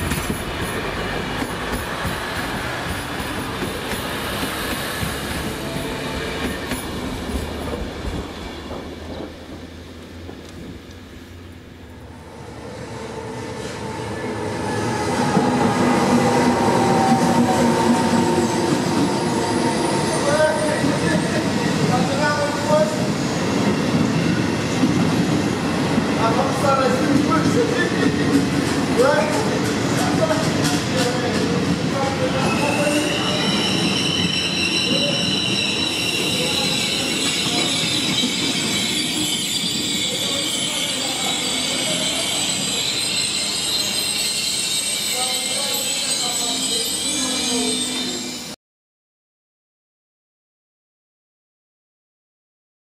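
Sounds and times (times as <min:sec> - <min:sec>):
train wheels rumbling past: 0:00.0 - 0:48.5
high-pitched squeal: 0:12.2 - 0:21.6, 0:32.2 - 0:48.6.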